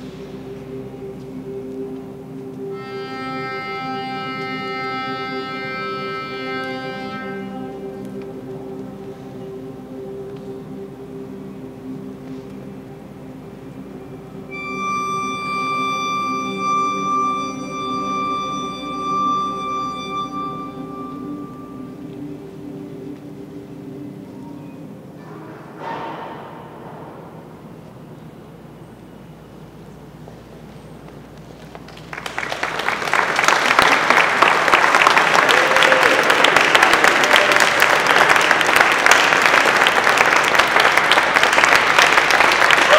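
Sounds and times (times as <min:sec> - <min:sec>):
low sustained chord: 0:00.0 - 0:31.0
high held note with bright overtones: 0:14.2 - 0:25.0
audience applauding: 0:31.6 - 0:42.9.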